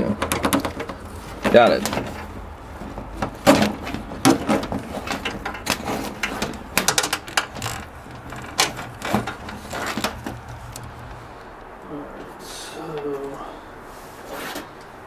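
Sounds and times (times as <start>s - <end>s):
clicks and knocks: 0.0s - 11.2s
cables scraping against panels: 0.0s - 12.4s, 13.0s - 15.0s.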